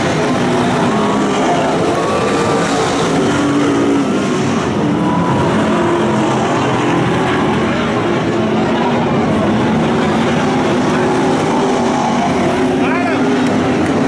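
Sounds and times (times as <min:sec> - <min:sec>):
race car engines accelerating: 0:00.0 - 0:14.0.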